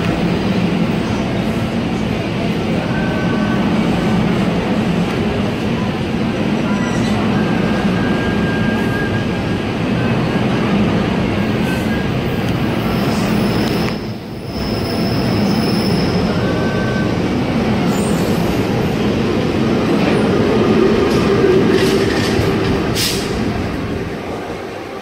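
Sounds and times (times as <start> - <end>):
train wheels rumbling on rail: 0.0 - 25.0
high wheel squeal: 12.8 - 17.2.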